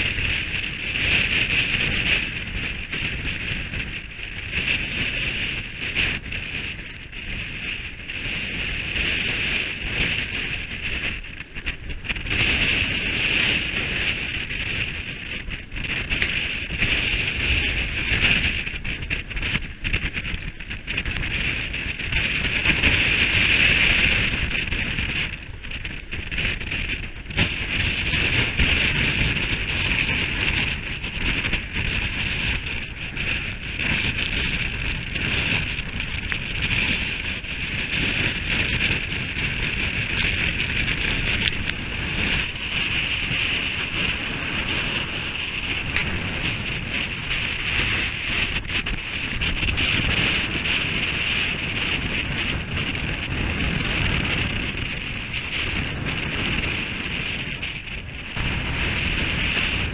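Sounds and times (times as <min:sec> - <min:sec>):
high rushing wind hiss: 0:00.0 - 0:59.9
waves washing alongside: 0:00.0 - 0:59.9
wind buffeting microphone: 0:00.0 - 0:59.9.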